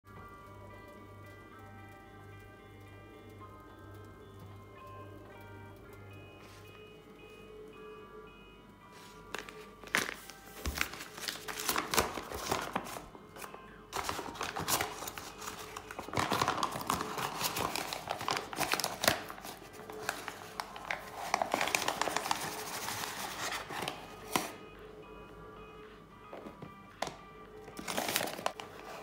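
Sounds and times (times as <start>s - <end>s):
background music: 0.1s - 29.0s
paper bag crinkling: 9.0s - 24.6s, 27.7s - 29.0s.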